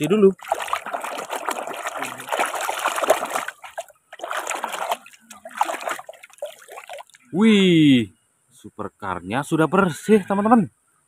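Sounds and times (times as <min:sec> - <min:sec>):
water splashing in a metal basin: 0:00.0 - 0:07.2.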